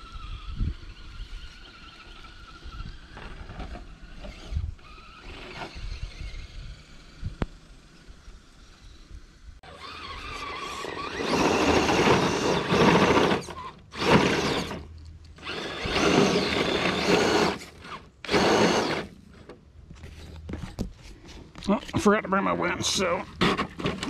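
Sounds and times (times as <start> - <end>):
tyres spinning in dirt: 0.0 - 9.0, 9.7 - 20.9, 21.5 - 24.0
electric motor whining: 0.0 - 19.2.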